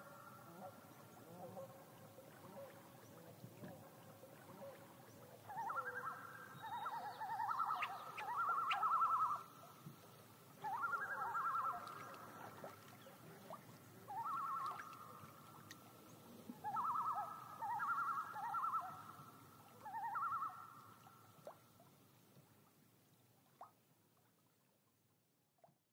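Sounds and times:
loons tremolo calls: 0:05.5 - 0:09.5, 0:10.6 - 0:12.4, 0:14.1 - 0:14.9, 0:16.6 - 0:20.7.

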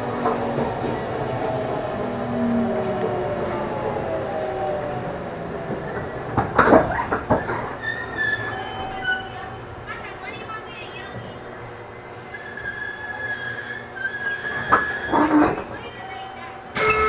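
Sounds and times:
train inverter whine: 0:00.0 - 0:15.3, 0:16.0 - 0:17.0
brake squealing: 0:06.8 - 0:15.6.

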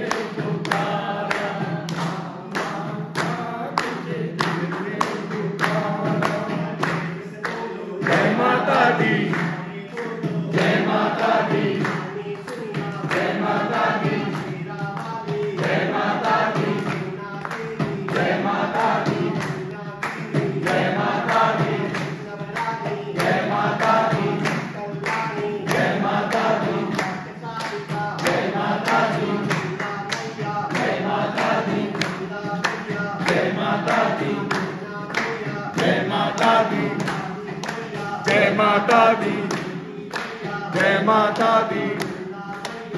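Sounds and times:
group of people singing: 0:00.0 - 0:42.9
hand claps: 0:00.0 - 0:42.9.

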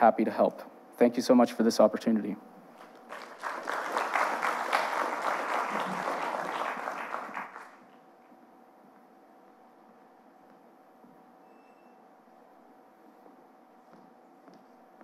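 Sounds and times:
faint steady hum: 0:00.0 - 0:15.0
audience applauding: 0:02.8 - 0:07.9.

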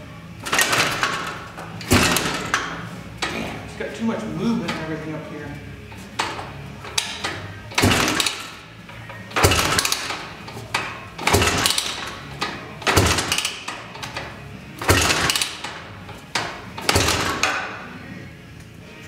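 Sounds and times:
engine kick-start turning over: 0:00.4 - 0:03.4, 0:05.9 - 0:08.7, 0:09.3 - 0:17.8.

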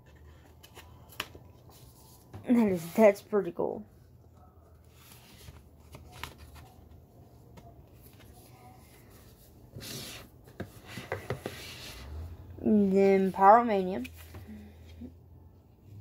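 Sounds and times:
paper booklet rustling: 0:04.7 - 0:11.9.

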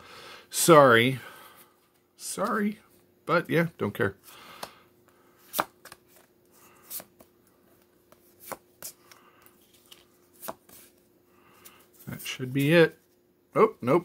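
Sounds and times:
cards flipped by hand: 0:05.4 - 0:11.0.

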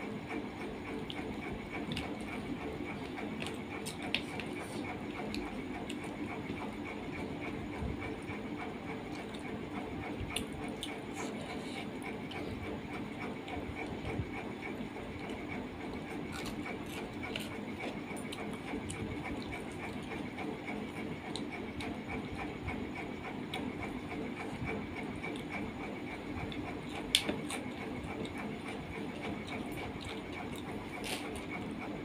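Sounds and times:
mixing and chewing food: 0:00.0 - 0:32.0.

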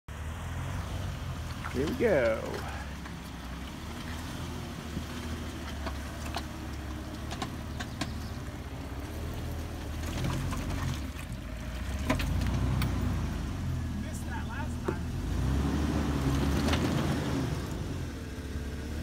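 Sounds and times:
engine running at low revs: 0:00.1 - 0:19.0
sharp clicks and knocks: 0:05.7 - 0:08.2.

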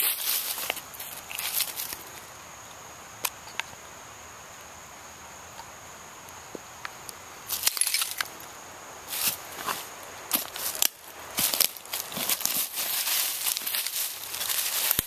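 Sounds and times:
footsteps in dry leaves: 0:00.0 - 0:02.2, 0:09.1 - 0:15.0.

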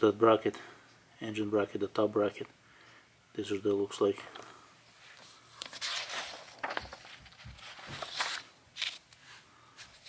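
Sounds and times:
paper rustling: 0:05.1 - 0:10.0.

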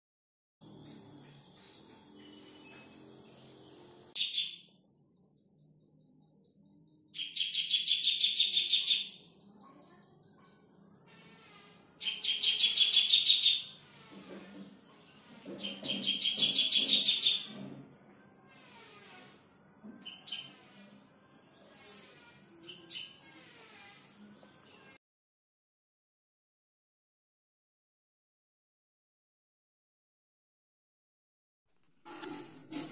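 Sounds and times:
nestlings begging calls: 0:12.0 - 0:13.8, 0:21.6 - 0:23.2.

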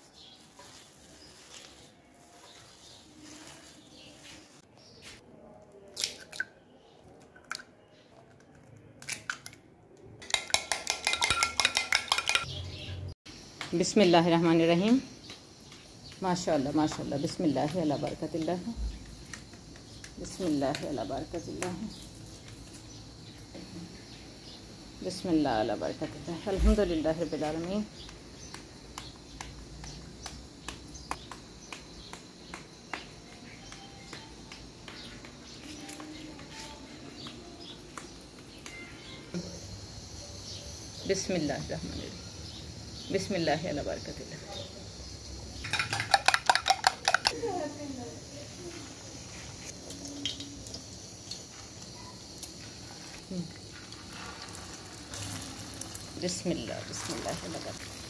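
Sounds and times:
small birds chirping: 0:00.0 - 0:09.0, 0:11.6 - 0:58.0
whisk clinking against bowl: 0:10.3 - 0:12.4.

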